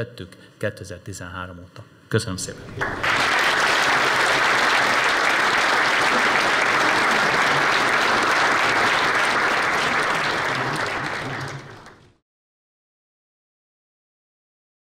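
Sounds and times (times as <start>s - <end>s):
large audience applauding: 2.6s - 12.2s.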